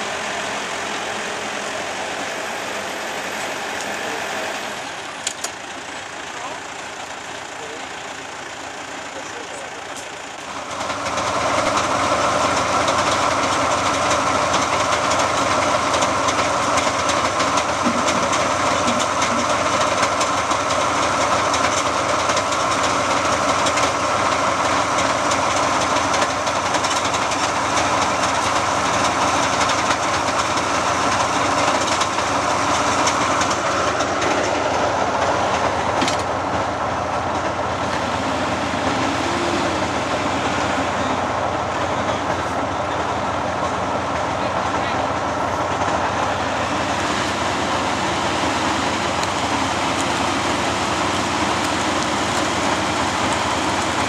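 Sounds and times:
bulldozer diesel engine running: 0.0 - 54.0
metallic clanking of tracks: 12.9 - 39.1.

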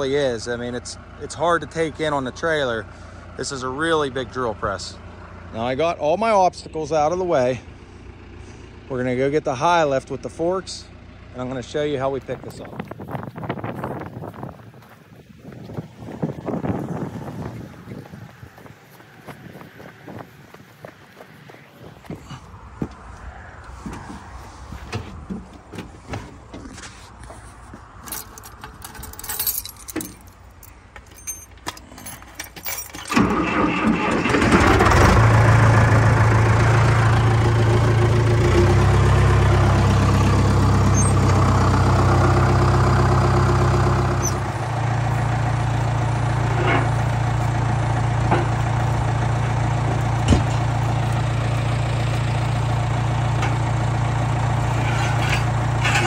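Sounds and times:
loader engine running: 0.0 - 56.0
clicks and knocks in cab: 24.9 - 26.8.

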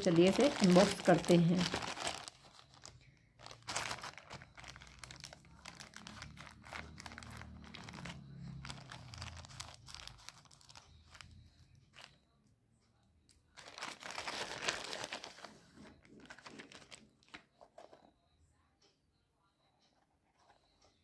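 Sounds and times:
plastic mailer bag crinkling: 0.0 - 11.3, 13.6 - 17.9.

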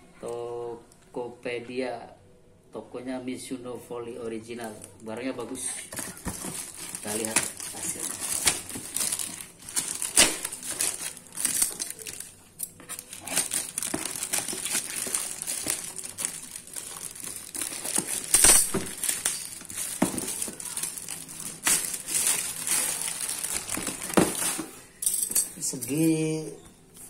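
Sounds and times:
plastic wrapping crinkling: 4.6 - 25.0
wrapping being torn: 5.9 - 24.6.

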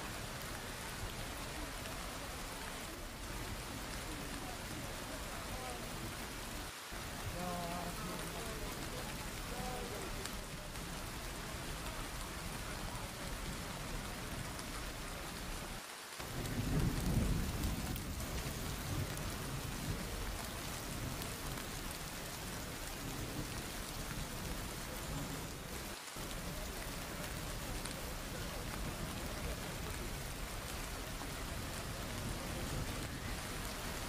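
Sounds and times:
heavy rain: 0.0 - 34.0
thunder rumble: 16.2 - 21.7.

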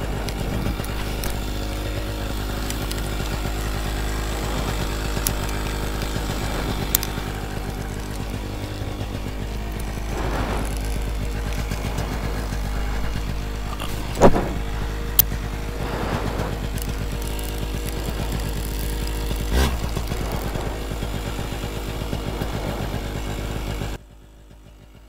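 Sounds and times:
paramotor engine humming: 0.0 - 25.0.

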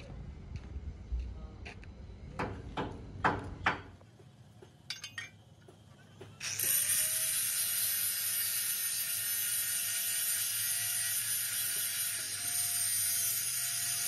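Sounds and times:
sharp knocks on steel: 2.4 - 3.9
power tool whining: 6.4 - 14.0.

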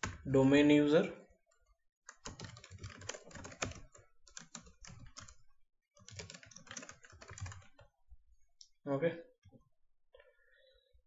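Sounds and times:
typing on a computer keyboard: 2.1 - 7.9.

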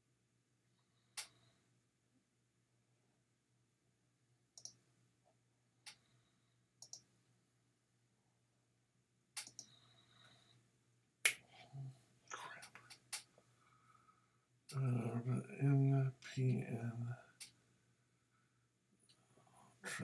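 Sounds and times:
computer mouse clicks: 4.6 - 4.8, 6.8 - 7.1, 9.4 - 9.8.

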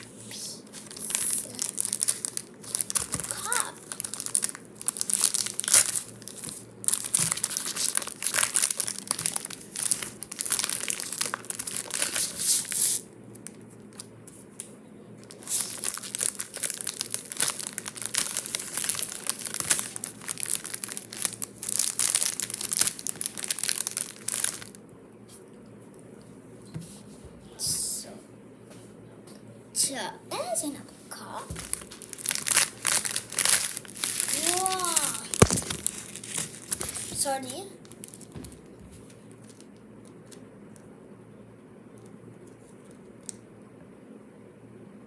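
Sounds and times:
plastic wrapping crinkling: 0.7 - 14.1, 15.2 - 24.8, 31.5 - 40.4.

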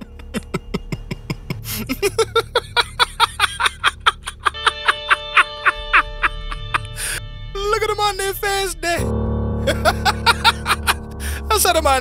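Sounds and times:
held chord tones: 0.1 - 12.0
plucked guitar-like notes: 4.8 - 12.0.

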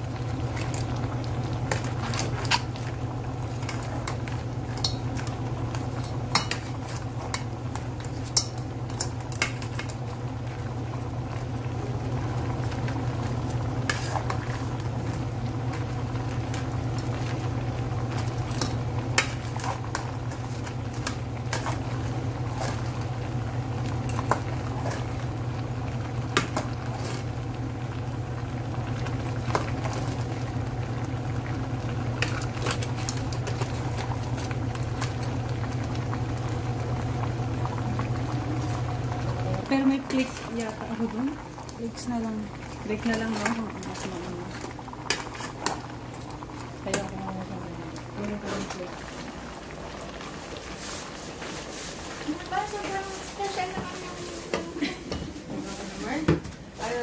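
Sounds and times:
sauce bubbling: 0.0 - 53.1
steady low hum: 0.0 - 57.0.

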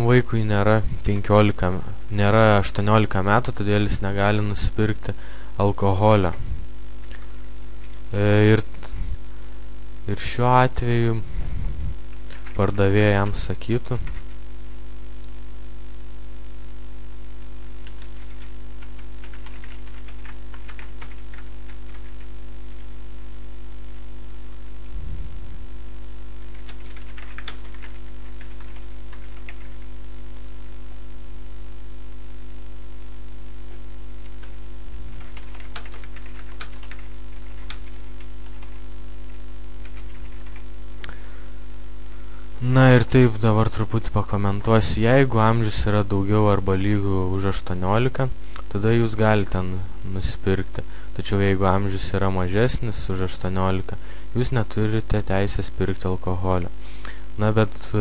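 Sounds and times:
electrical mains hum: 0.0 - 58.0
keyboard typing: 12.2 - 12.7, 13.9 - 14.4, 17.8 - 22.3, 26.5 - 29.8, 34.2 - 38.8, 39.8 - 40.6.

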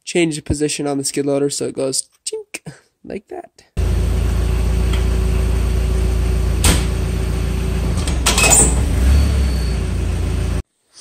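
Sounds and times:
diesel engine running: 3.8 - 10.6
rattle of clunks: 7.8 - 9.1.

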